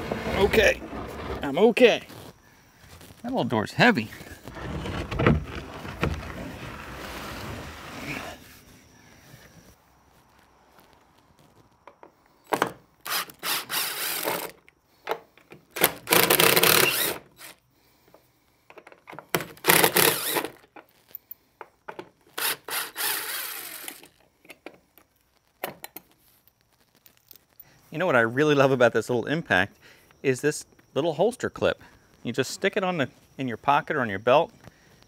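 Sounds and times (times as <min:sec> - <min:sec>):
impact driver running: 0:19.6 - 0:20.5.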